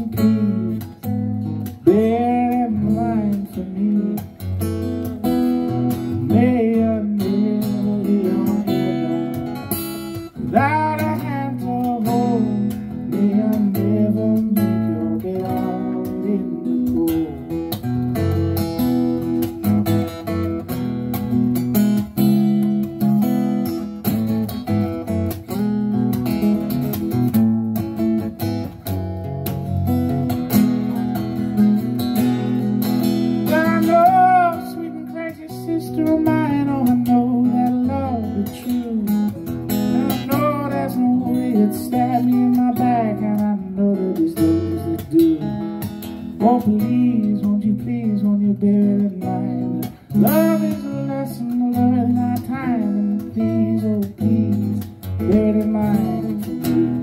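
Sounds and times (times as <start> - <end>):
man singing: 0.0 - 17.9, 33.4 - 57.0
acoustic guitar strumming: 0.0 - 57.0.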